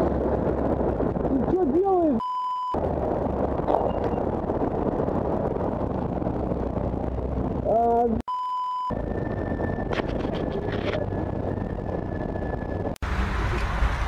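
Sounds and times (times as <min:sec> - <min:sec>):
cars idling and moving: 0:00.0 - 0:08.2, 0:08.9 - 0:14.0
person's voice: 0:01.3 - 0:02.2, 0:07.6 - 0:08.2
censor bleep: 0:02.2 - 0:02.8, 0:08.3 - 0:09.0.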